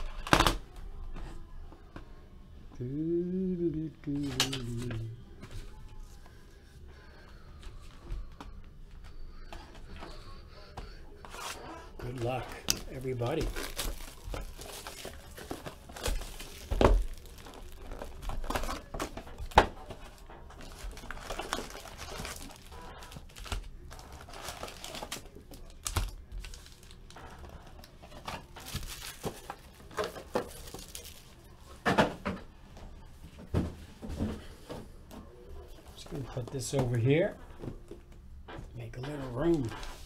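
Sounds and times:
plastic wrap crinkling and tearing: 0:11.4 - 0:31.6.

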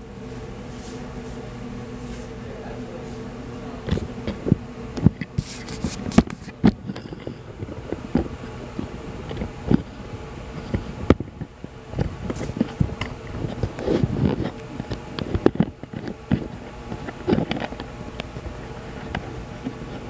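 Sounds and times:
kitchen equipment humming: 0:00.0 - 0:20.0
sharp clicks and knocks: 0:10.6 - 0:18.4.

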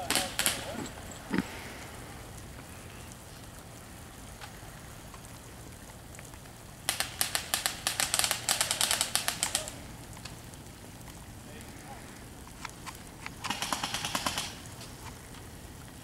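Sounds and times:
low background hiss: 0:00.0 - 0:16.0
airsoft gun firing rapidly: 0:00.1 - 0:00.7, 0:06.9 - 0:09.7, 0:13.4 - 0:14.6.

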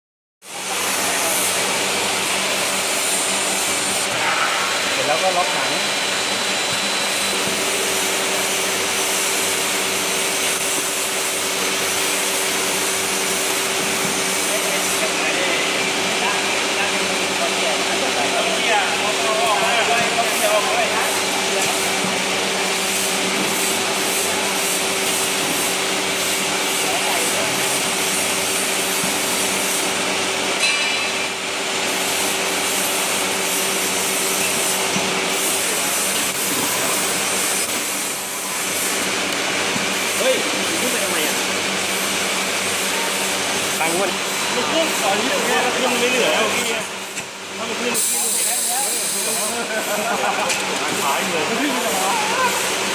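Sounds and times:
industrial machinery whirring: 0:00.4 - 0:52.9.

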